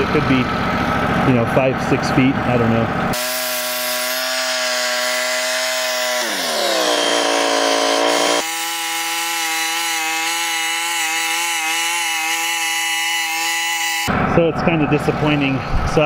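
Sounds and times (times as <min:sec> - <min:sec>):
sawmill engine: 0:00.0 - 0:15.6
bandsaw sawing through log: 0:03.2 - 0:14.1.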